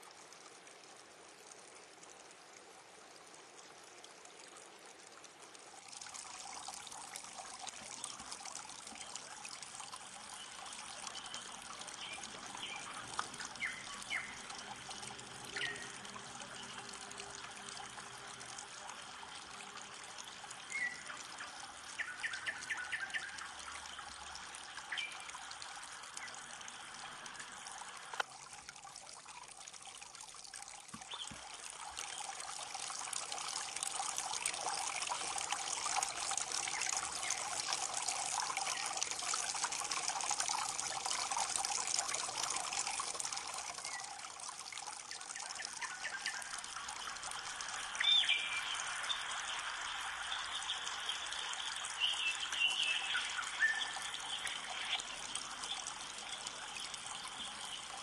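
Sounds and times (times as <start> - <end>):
stream trickling over a log: 0.0 - 58.0.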